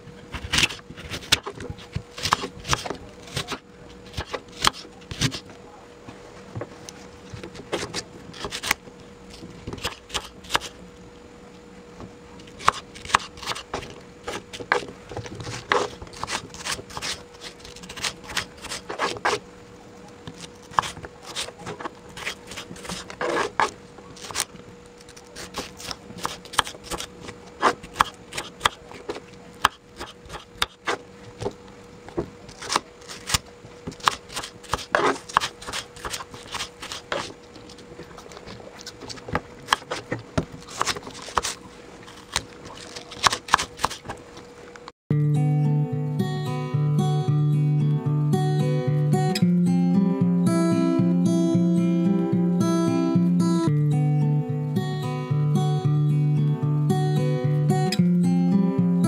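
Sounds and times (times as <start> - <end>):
faint steady hum: 0.0 - 59.0
knife chopping on wooden board: 12.6 - 14.9, 20.7 - 24.4, 25.6 - 31.0, 34.0 - 37.3.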